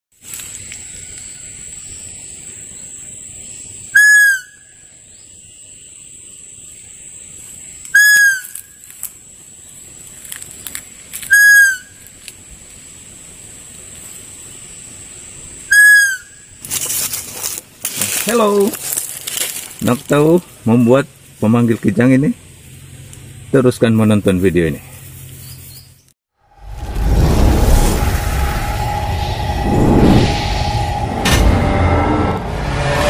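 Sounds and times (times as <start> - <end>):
steady high-pitched tone: 26.4 - 33.0.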